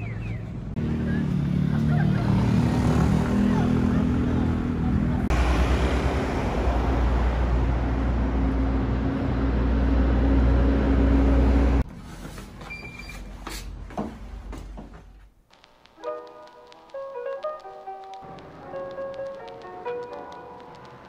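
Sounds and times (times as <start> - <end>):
bus passing engine rumble: 0.0 - 11.8
street ambience: 0.0 - 21.0
faint clicks: 15.5 - 21.0.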